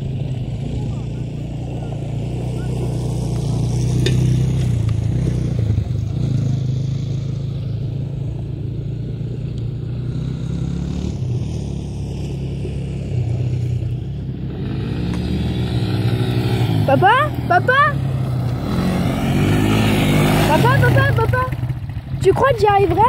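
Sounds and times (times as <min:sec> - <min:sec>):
vehicle engine idling: 0:00.0 - 0:10.8, 0:16.0 - 0:23.0.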